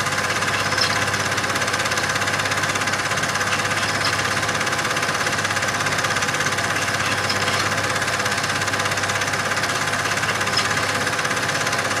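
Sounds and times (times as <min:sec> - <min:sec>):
film projector running: 0:00.0 - 0:12.0.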